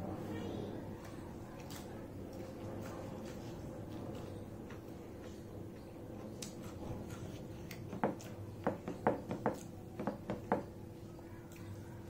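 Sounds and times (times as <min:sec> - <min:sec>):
steady low hum: 0:00.0 - 0:12.0
wet chewing clicks and smacks: 0:04.0 - 0:08.6.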